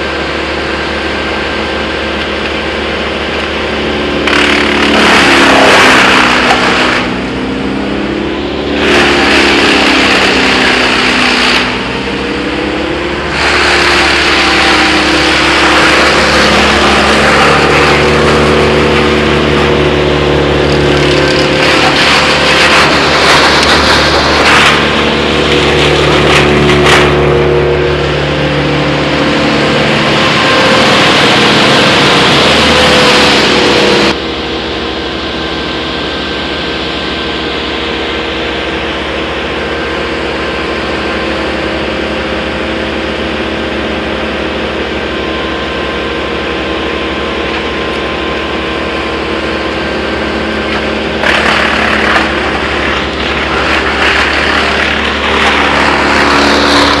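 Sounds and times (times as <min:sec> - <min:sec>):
loader engine drone: 0:00.0 - 0:57.0
wood chipper running: 0:00.0 - 0:57.0
wood cracking: 0:04.1 - 0:07.2, 0:08.8 - 0:11.9, 0:13.3 - 0:33.2, 0:50.5 - 0:57.0.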